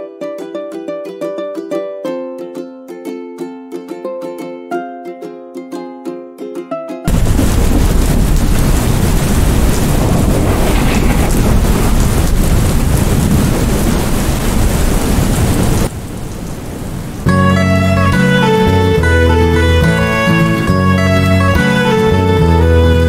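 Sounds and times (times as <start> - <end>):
plucked guitar music: 0.0 - 7.3, 17.2 - 23.0
heavy rain downpour: 7.1 - 23.0.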